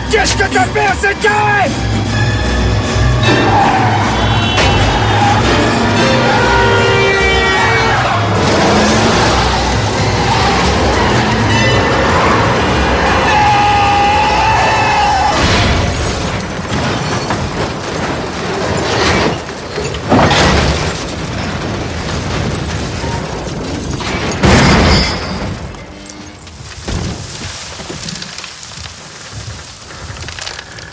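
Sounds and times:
film score music: 0.0 - 27.1
debris scattering: 2.5 - 30.9
car crashing and tumbling: 8.0 - 13.7, 14.4 - 30.9.

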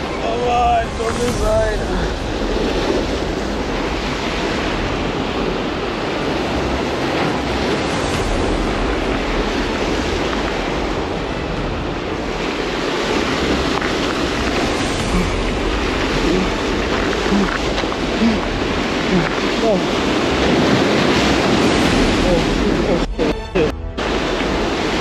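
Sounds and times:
waves and surf washing: 0.0 - 25.0.

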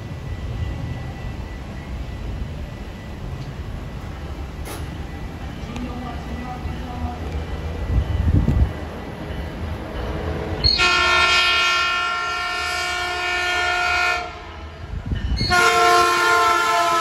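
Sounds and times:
low rumble of train: 0.0 - 17.0
locomotive air horn chord: 10.6 - 14.6, 15.4 - 17.0.

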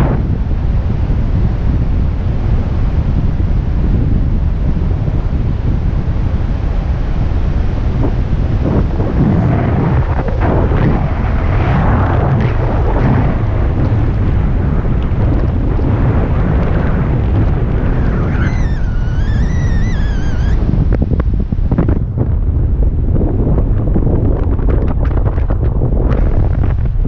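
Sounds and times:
wind buffeting microphone: 0.0 - 27.0
high wavering tone: 17.9 - 20.7.

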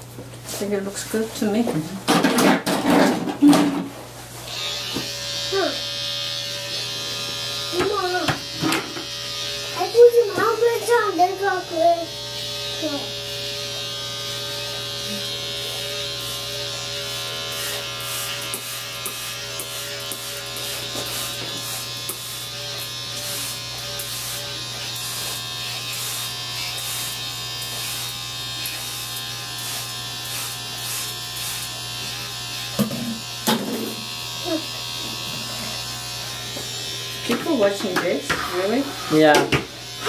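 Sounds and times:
electric hair clippers buzzing: 2.1 - 40.0.

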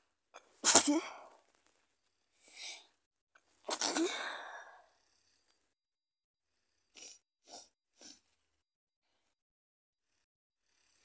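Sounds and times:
woman sneezing: 0.6 - 1.2, 3.7 - 4.4
woman sniffing: 6.9 - 8.2.

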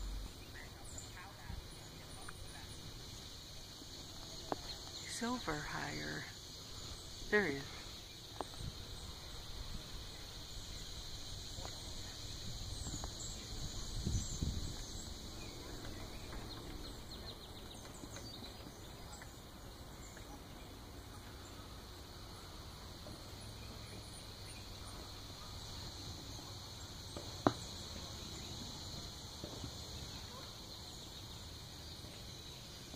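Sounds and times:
low rumble: 0.0 - 1.0
faint bird chirps: 0.0 - 32.9
insect drone: 0.0 - 32.9.

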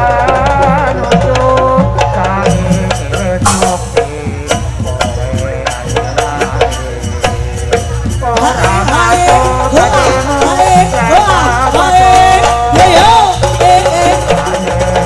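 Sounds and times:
drums beating quick rhythm: 0.0 - 15.0
wavering melody line: 3.4 - 6.0.

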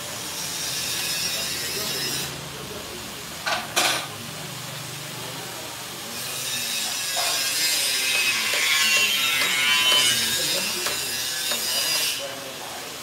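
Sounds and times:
bowl cutter metallic rasping whine: 0.0 - 2.5, 6.2 - 12.5.

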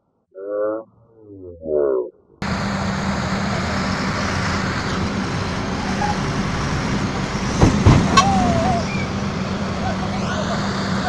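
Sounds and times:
diesel engines humming: 1.4 - 11.0
loud rushing noise: 2.4 - 11.0
knocks: 7.6 - 8.3.

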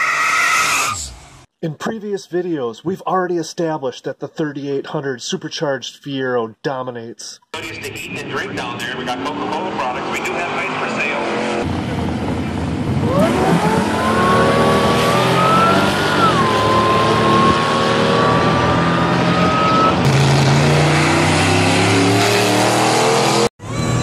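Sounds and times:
car engine revving: 7.6 - 24.0
supercharger whine: 7.6 - 24.0.

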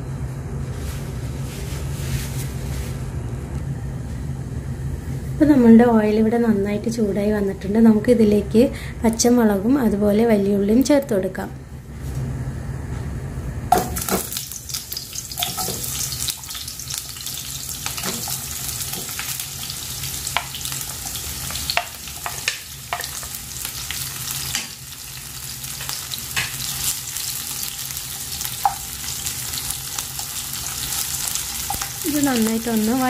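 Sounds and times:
vegetables sizzling in oil: 13.7 - 33.0.

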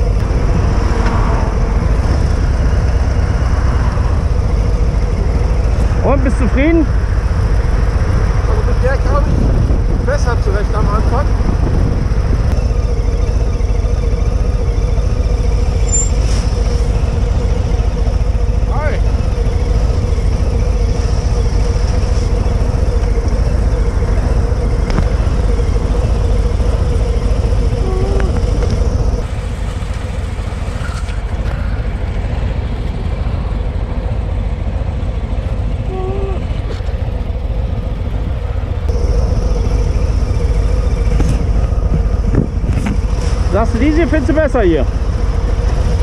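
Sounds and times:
motorcycles rumbling: 0.0 - 46.0.

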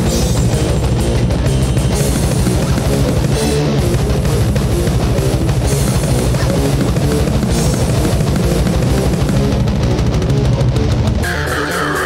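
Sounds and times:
distorted guitars: 0.0 - 12.0
drum kit playing: 0.0 - 12.0.

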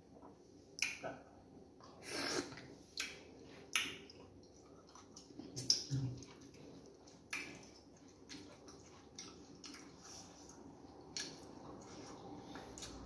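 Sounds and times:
wet chewing and swallowing: 0.1 - 13.0.

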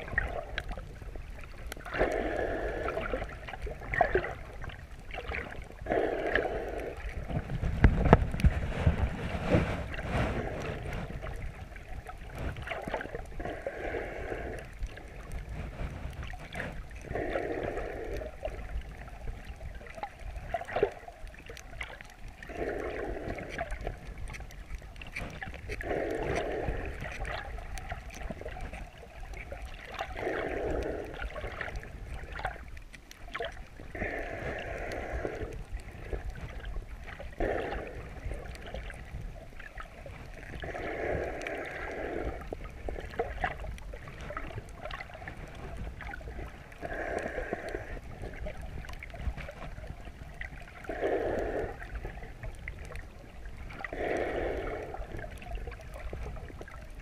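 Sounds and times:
muffled underwater breathing: 0.0 - 32.6, 33.8 - 56.8
low water rumble: 0.0 - 57.0.

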